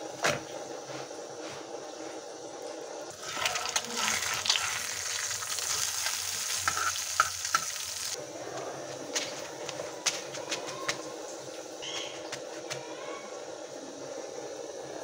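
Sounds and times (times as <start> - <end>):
egg sizzling in hot oil: 3.0 - 8.2.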